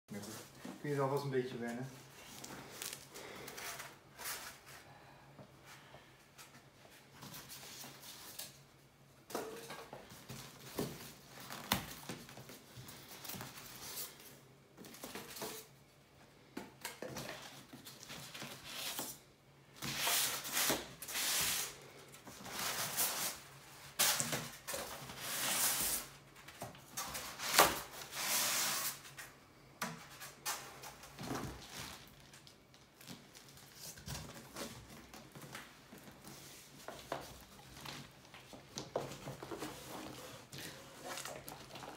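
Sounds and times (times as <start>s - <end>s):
cardboard rustling and scraping: 33.0s - 41.9s.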